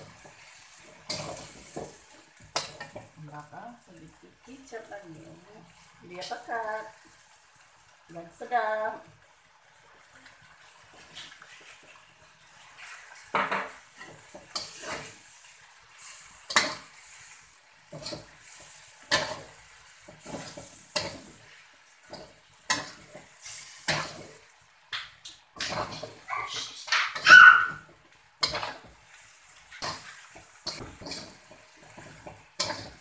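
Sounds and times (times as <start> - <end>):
metal spatula scraping wok: 0.0 - 3.1, 12.6 - 24.5, 25.6 - 27.7, 28.4 - 33.0
faint sizzle: 0.0 - 33.0.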